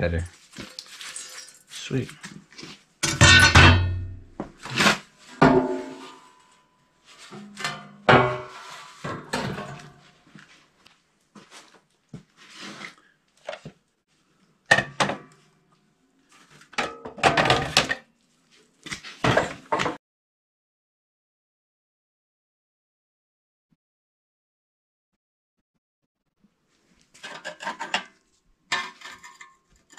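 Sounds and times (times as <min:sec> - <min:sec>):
sheet metal clanking: 0:03.0 - 0:04.3.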